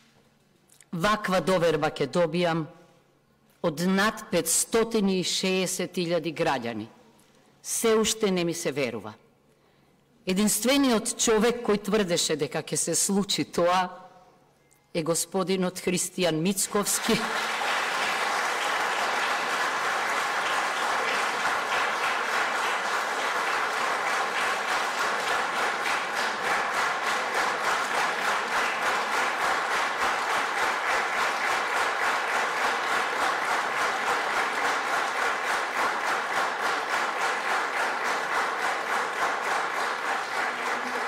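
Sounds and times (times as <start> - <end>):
audience applauding: 16.8 - 41.0.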